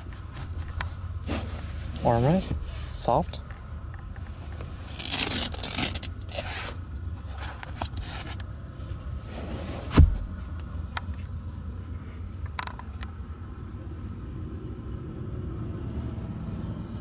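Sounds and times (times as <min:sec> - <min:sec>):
dull thump: 0:09.9 - 0:10.3.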